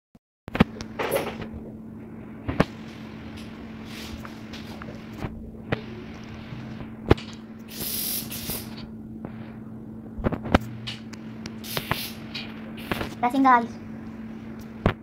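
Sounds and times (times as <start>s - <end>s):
low hum: 0.5s - 15.0s
short bursts of hiss: 7.7s - 8.8s, 11.6s - 12.2s.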